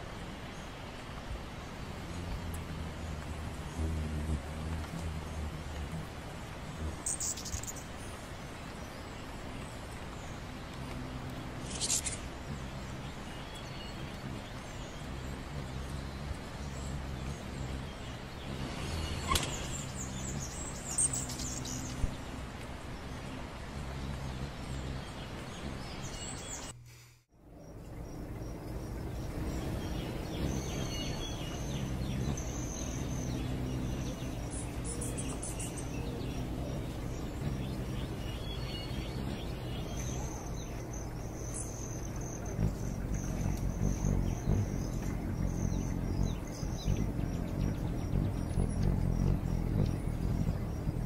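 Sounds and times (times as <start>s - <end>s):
hummingbird chirps: 0.0s - 26.8s, 27.4s - 51.0s
low hum: 0.0s - 51.0s
steady background hiss: 0.0s - 51.0s
very high ticks: 2.0s - 8.0s, 28.2s - 51.0s.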